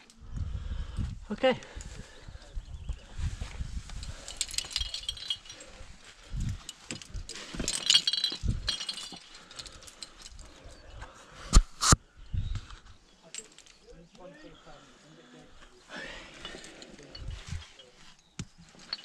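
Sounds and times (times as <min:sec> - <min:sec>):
carabiners clinking and rattling: 0:03.8 - 0:11.0, 0:13.1 - 0:14.1, 0:15.4 - 0:19.0.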